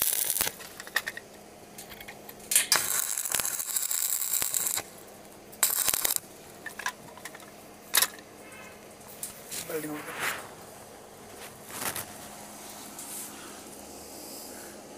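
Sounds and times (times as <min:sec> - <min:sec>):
welding arc crackling: 0:00.0 - 0:07.6, 0:09.0 - 0:12.8.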